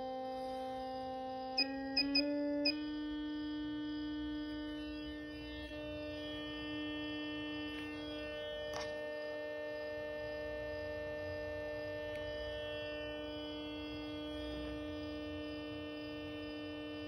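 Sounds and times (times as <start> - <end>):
steady electrical buzz: 0.0 - 17.0.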